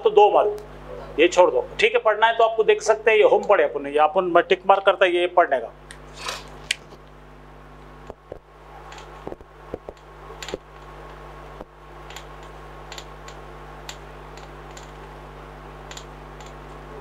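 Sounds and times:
steady low hum: 0:00.0 - 0:17.0
marker tapping on a whiteboard: 0:09.2 - 0:10.6.

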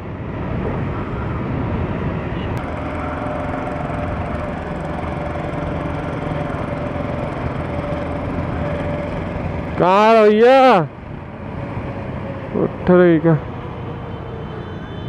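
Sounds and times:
road and wind noise: 0:00.0 - 0:15.0
scooter engine running: 0:02.6 - 0:11.4.

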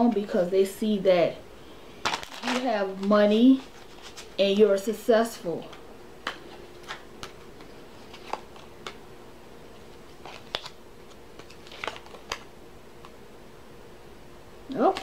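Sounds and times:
faint steady hum: 0:00.0 - 0:15.0
cards clicking and tapping: 0:05.7 - 0:09.0.

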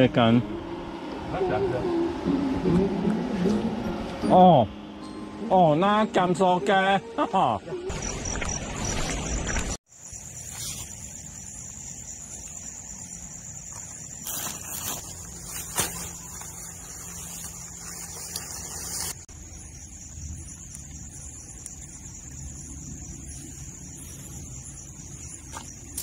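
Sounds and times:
crickets chirring: 0:04.3 - 0:26.0
camping gear rustling: 0:13.6 - 0:19.3.

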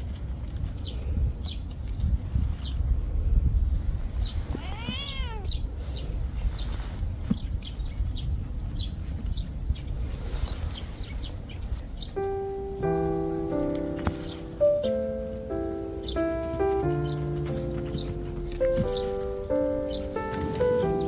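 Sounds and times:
cat meowing: 0:04.4 - 0:05.7
music: 0:12.2 - 0:21.0.

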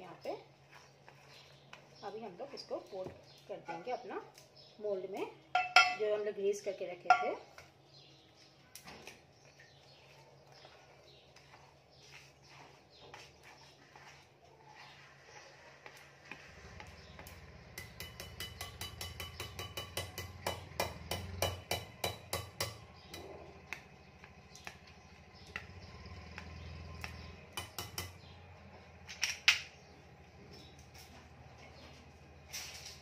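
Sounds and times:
whisk tapping on mixing bowl: 0:17.2 - 0:22.8.

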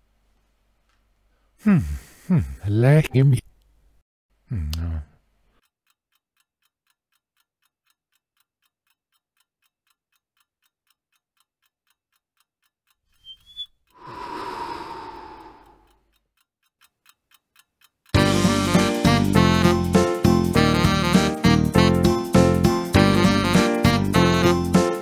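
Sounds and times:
clock ticking: 0:05.8 - 0:13.0, 0:15.6 - 0:18.2
breathy exhaling sigh: 0:14.0 - 0:16.0.

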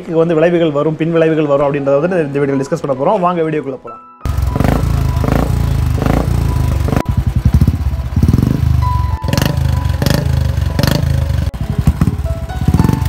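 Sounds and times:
motorcycle engine thumping: 0:04.3 - 0:13.0.

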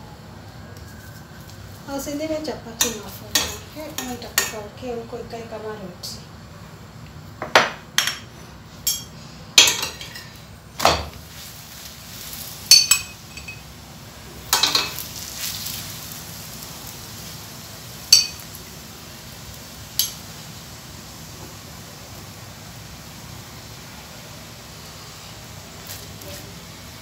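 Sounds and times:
low steady sizzle: 0:00.0 - 0:27.0
metal spoon clinking on pan: 0:02.8 - 0:04.6, 0:08.8 - 0:10.3, 0:12.7 - 0:13.6, 0:18.1 - 0:18.4, 0:20.0 - 0:20.2.

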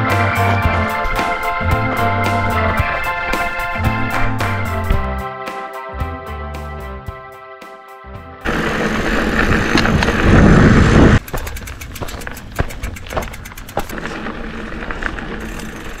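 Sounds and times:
wind rush and rolling bike noise: 0:00.0 - 0:05.2, 0:08.4 - 0:16.0
background music with sustained tones: 0:00.0 - 0:08.5
bike ticks and clatters: 0:08.5 - 0:16.0.

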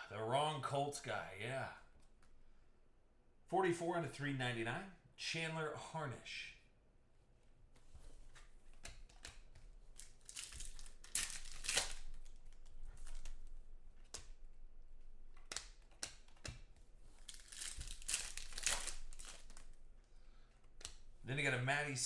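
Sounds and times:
foil wrappers crinkling: 0:10.0 - 0:13.4, 0:17.1 - 0:19.8
light ticks of cards: 0:15.3 - 0:21.1.

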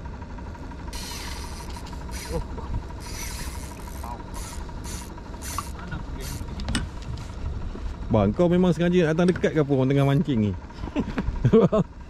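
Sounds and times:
outboard motor running: 0:00.0 - 0:12.0
short rasping bursts: 0:00.9 - 0:06.6.

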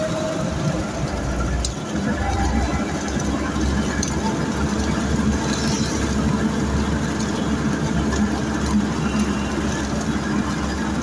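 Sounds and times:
vehicle engine and road noise: 0:00.0 - 0:11.0.

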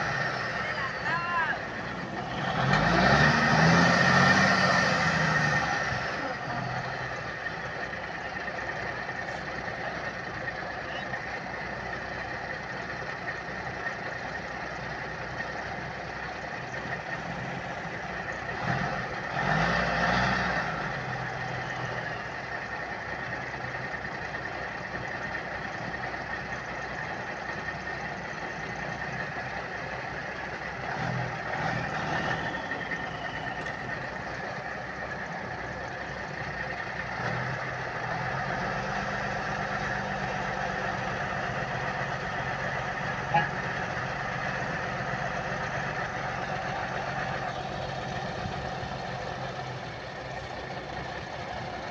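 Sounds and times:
heavy truck engines droning: 0:00.0 - 0:51.9.

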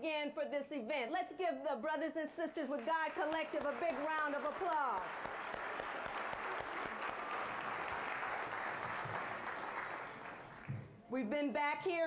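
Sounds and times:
audience applauding: 0:02.7 - 0:10.9.

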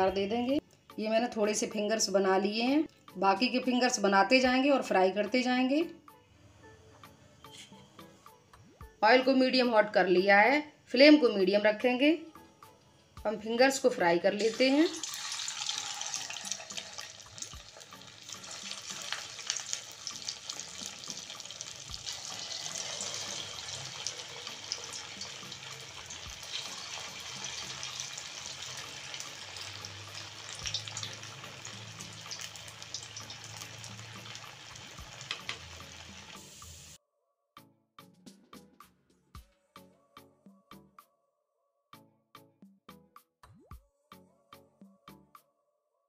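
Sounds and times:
food deep-frying in oil: 0:14.4 - 0:37.0.

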